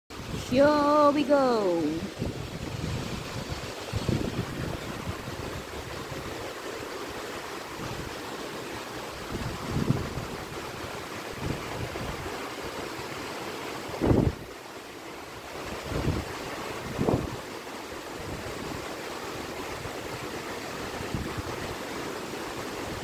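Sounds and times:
rain falling steadily: 0.1s - 23.0s
wind buffeting microphone: 1.9s - 8.4s, 9.0s - 12.5s, 13.9s - 14.5s, 15.5s - 17.6s, 19.7s - 21.8s.

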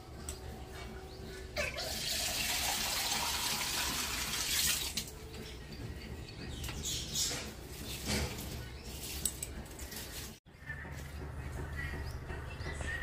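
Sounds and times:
tap water running into mug: 1.9s - 5.0s.

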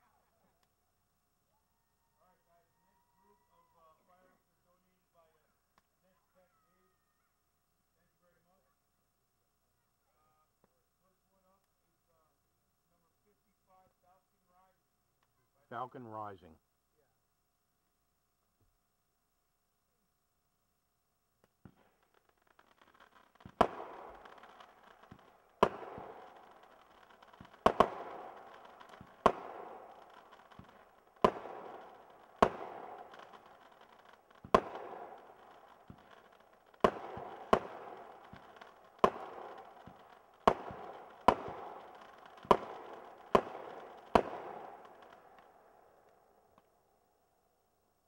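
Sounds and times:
firework crackle: 21.4s - 46.8s
firework bangs: 21.6s - 45.6s.

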